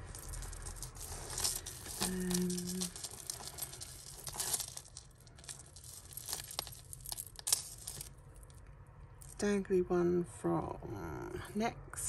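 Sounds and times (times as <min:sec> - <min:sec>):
beads and chains clicking: 0:00.0 - 0:08.6.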